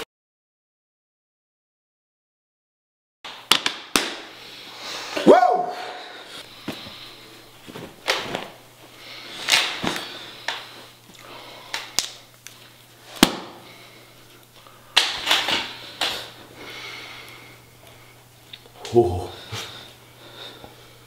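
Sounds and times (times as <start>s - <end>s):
steady low hum: 4.2s - 21.0s
towel rustling: 7.5s - 10.4s.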